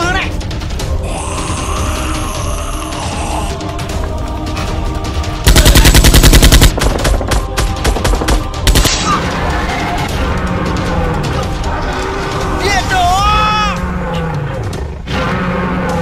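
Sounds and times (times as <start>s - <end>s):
background music: 0.0s - 16.0s
automatic gunfire: 5.5s - 9.0s.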